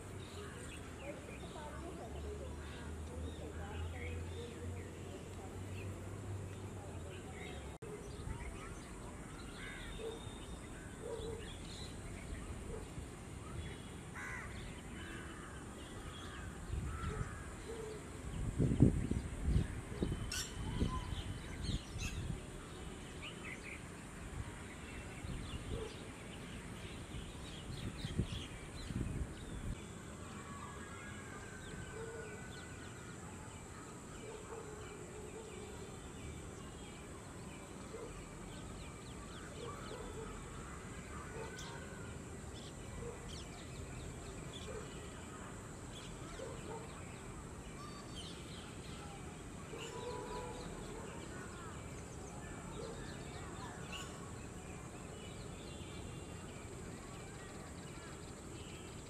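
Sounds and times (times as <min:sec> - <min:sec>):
birds calling: 0:06.5 - 0:22.4.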